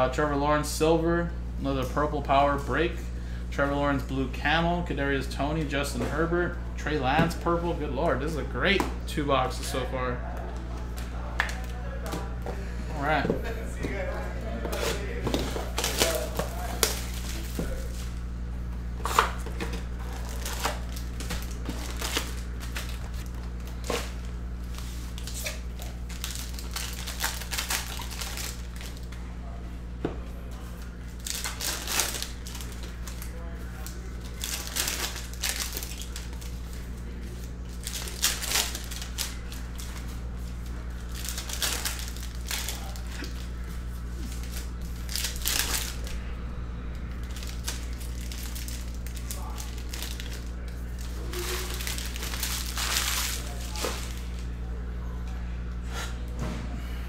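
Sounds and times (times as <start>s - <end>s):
low hum: 10.2s - 57.0s
plastic wrappers tearing and crinkling: 14.8s - 18.1s, 19.0s - 29.1s, 31.1s - 46.1s, 47.2s - 54.5s.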